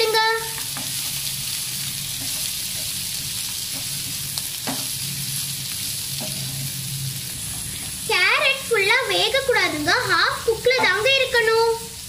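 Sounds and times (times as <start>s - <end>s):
vegetables sizzling in a frying pan: 0.0s - 12.0s.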